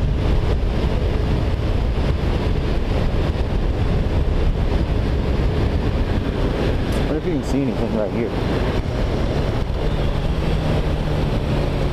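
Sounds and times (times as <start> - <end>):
motorcycle engine drone: 0.0 - 11.9
wind rushing over microphone: 0.0 - 11.9.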